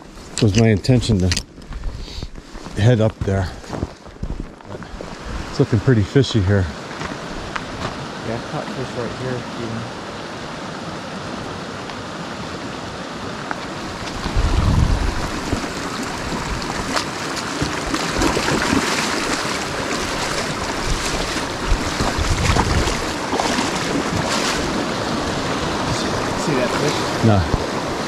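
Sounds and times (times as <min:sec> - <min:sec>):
wind buffeting microphone: 0:00.0 - 0:05.8, 0:13.8 - 0:28.0
stream water rushing: 0:04.6 - 0:28.0.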